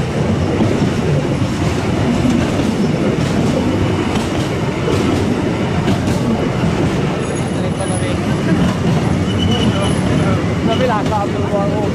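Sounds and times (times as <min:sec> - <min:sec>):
train wheels rumbling on rail: 0:00.0 - 0:11.9.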